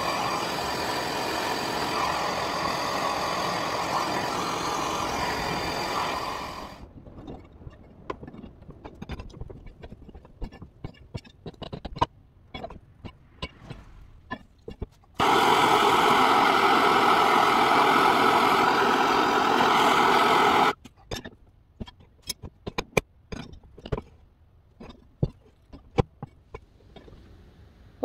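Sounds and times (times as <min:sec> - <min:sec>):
gas torch hissing: 0:00.0 - 0:06.8, 0:15.2 - 0:20.8
metal clicks and knocks: 0:07.0 - 0:13.6, 0:20.8 - 0:27.2.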